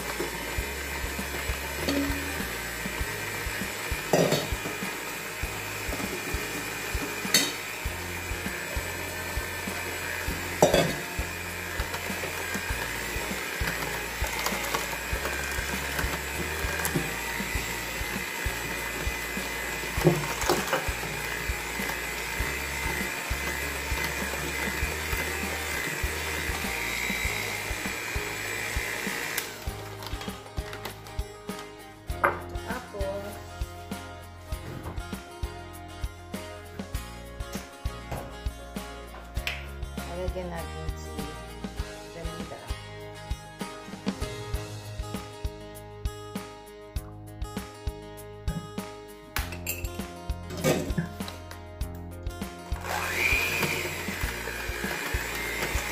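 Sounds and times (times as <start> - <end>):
electric hand mixer whining: 0.0 - 31.0, 52.7 - 55.9.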